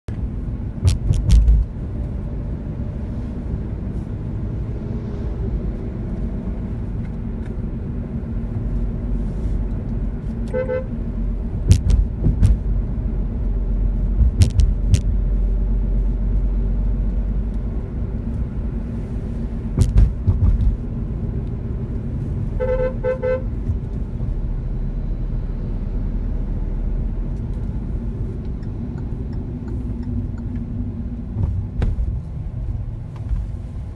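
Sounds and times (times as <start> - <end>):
car engine and road rumble: 0.0 - 33.9
sharp clicks and knocks: 0.8 - 1.7, 11.6 - 12.7, 14.2 - 15.2, 19.8 - 20.8
car horn beeps: 10.4 - 11.0, 22.6 - 23.6.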